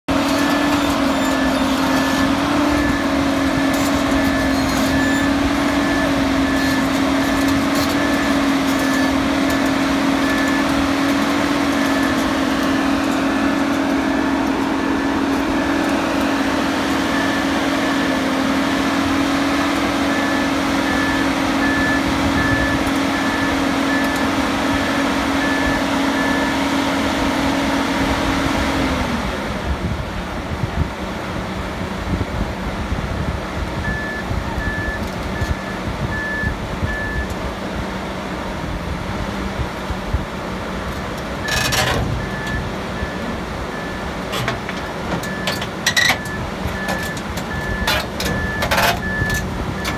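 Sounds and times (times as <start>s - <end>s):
diesel engine running: 0.0s - 49.9s
travel alarm beeping: 41.4s - 49.9s.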